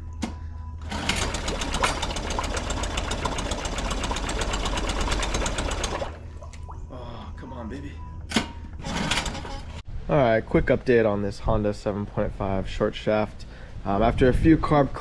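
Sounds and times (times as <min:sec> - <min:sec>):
outboard engine running: 0:00.9 - 0:06.2.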